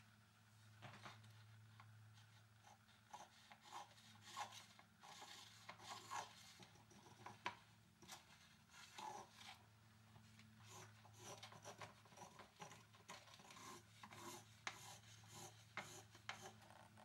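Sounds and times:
scribe scratching wood: 2.2 - 9.6, 10.6 - 16.8.

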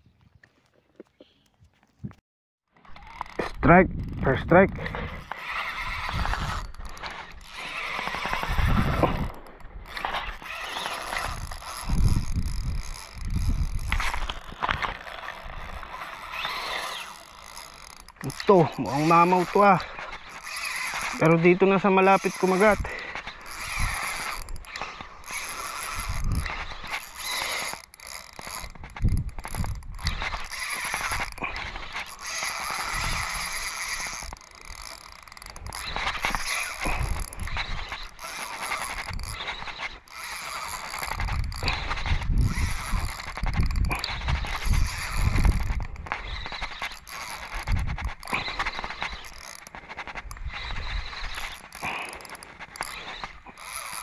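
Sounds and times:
fishing reel gears whirring: 2.7 - 54.0
wind thumping on microphone: 3.4 - 5.2, 8.2 - 10.2, 11.2 - 14.8, 41.1 - 46.6, 47.5 - 49.1.

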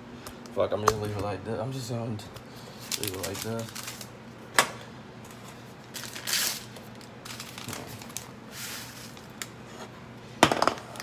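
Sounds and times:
paper packet crinkling: 2.7 - 4.2, 5.8 - 9.5.

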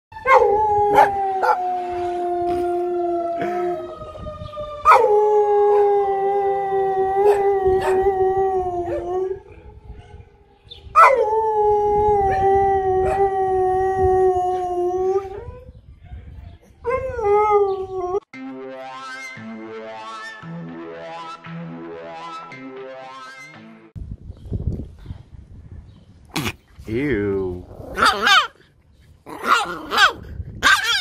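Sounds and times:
dog howling: 0.2 - 3.8, 4.9 - 9.6, 11.0 - 15.6
electronic music: 18.4 - 23.9.

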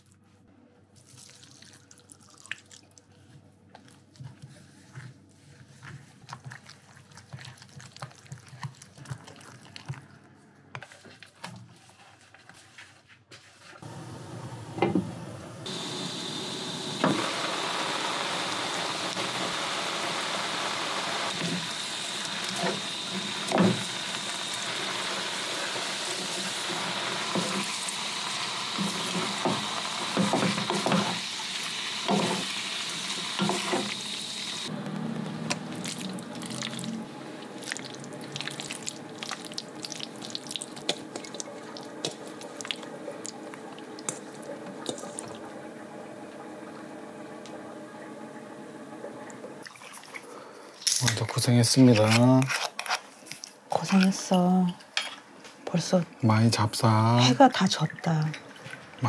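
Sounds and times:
wet food squishing: 0.9 - 10.3, 35.5 - 45.4
vegetables hissing in a pan: 13.8 - 34.8
utensils knocking on pan: 28.8 - 31.2.

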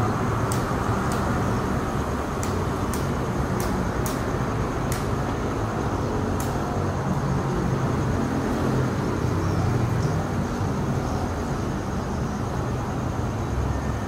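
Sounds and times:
outdoor noise: 0.0 - 14.0
sharp clicks: 0.4 - 1.5, 2.3 - 5.3, 6.4 - 6.7.

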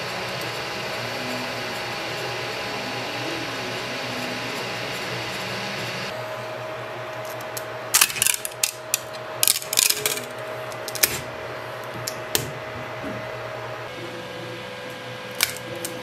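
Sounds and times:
steady hum: 0.0 - 16.0
plastic parts clicking and clattering: 7.2 - 11.3.

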